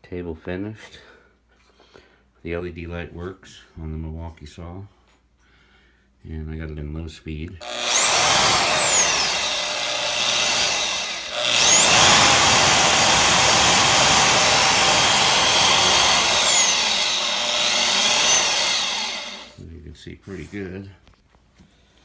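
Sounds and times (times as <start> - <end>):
band saw whining: 7.6 - 19.6.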